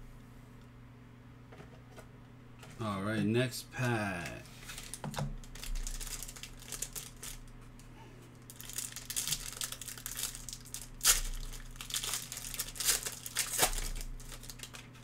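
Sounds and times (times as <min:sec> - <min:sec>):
foil wrapper crinkling and tearing: 0:04.6 - 0:07.5, 0:08.4 - 0:15.0.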